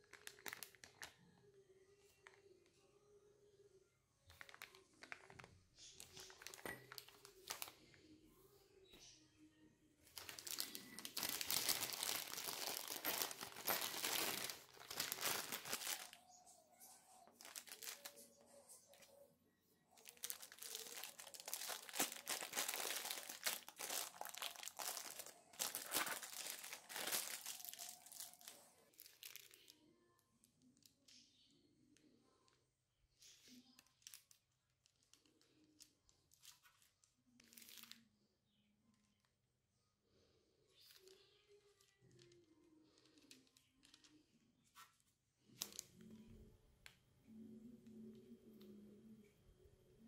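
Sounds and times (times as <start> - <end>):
plastic bag crinkling: 0.0 - 1.1, 4.3 - 7.8, 10.1 - 16.3, 17.2 - 19.1, 20.0 - 29.7, 36.3 - 38.0.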